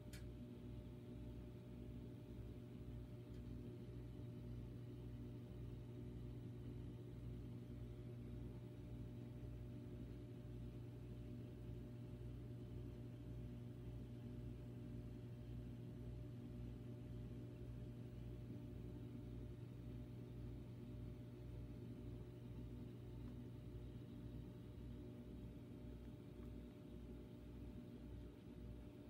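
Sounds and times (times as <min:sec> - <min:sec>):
aquarium water pump humming: 0:00.0 - 0:29.0.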